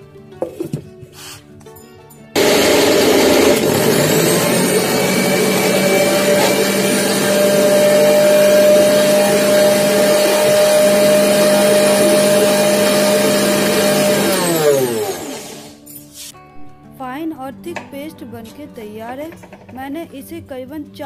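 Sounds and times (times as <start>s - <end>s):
mixer grinder whining: 2.4s - 15.8s.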